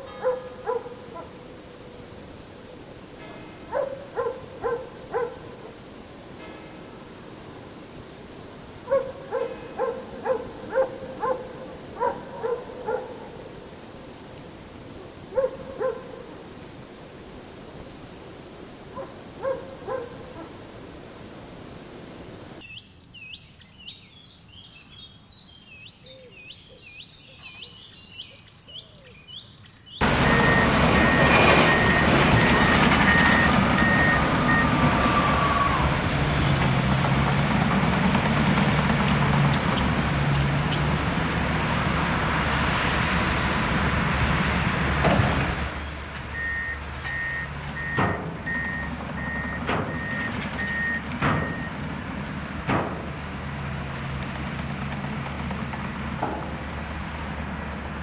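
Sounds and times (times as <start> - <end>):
small birds chirping: 22.6 - 30.1
reversing alarm beeping: 30.0 - 35.1, 46.3 - 51.9
earthmoving machinery running: 30.0 - 45.6.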